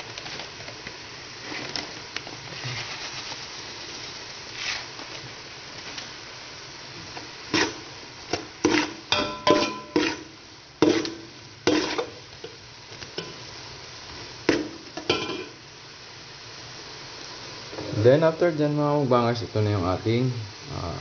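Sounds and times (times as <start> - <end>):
low sizzle: 0.0 - 21.0
metal spoon scraping a pot: 8.7 - 11.1, 11.7 - 12.2.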